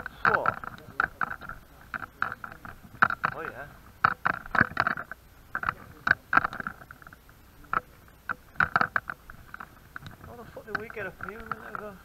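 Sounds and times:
footsteps crunching over rubble: 7.8 - 12.0.

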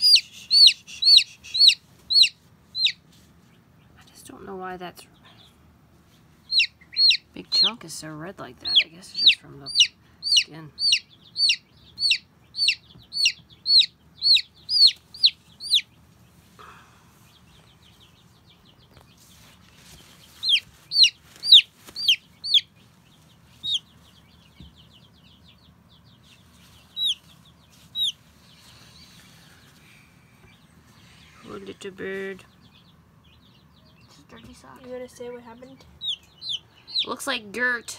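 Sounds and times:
baby chick peeping: 0.0 - 37.9.

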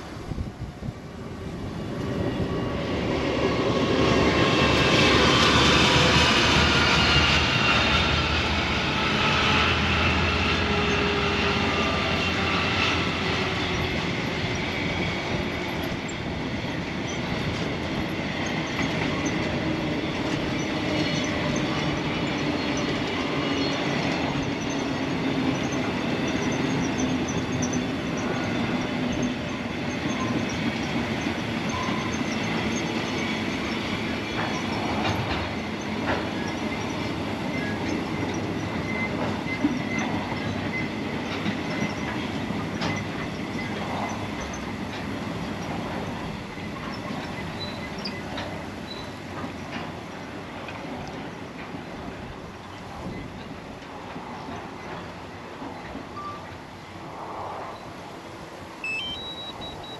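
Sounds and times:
train wagons clattering over rails: 0.0 - 57.1
high wheel squeal: 4.4 - 44.8, 45.5 - 50.2, 58.8 - 59.9.

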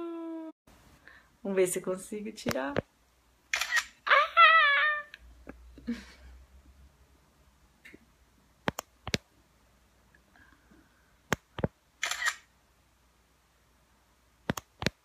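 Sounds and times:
camera shutter sound: 3.5 - 4.0, 12.0 - 12.5.

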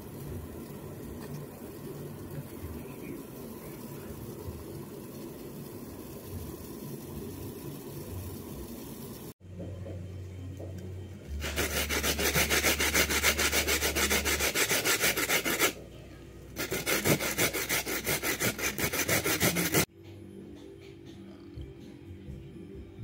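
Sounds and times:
coconut grated on metal grater: 11.4 - 15.8, 16.6 - 19.9.

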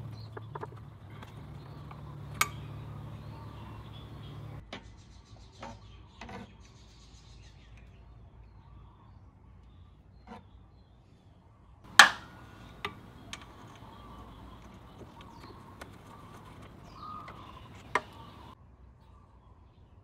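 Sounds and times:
light clicks: 11.9 - 18.6.

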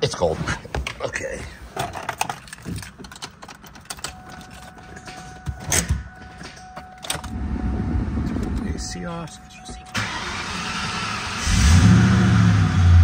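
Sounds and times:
keys and ignition rattling: 0.9 - 7.4
faint steady whine: 4.0 - 10.5
car engine starting: 9.8 - 13.0.

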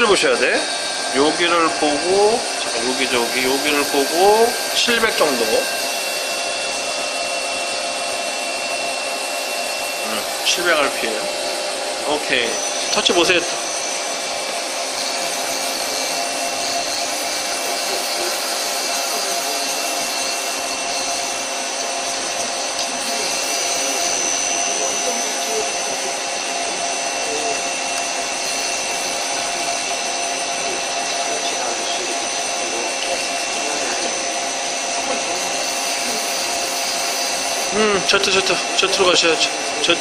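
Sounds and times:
lathe running with whining hum: 0.0 - 40.0.

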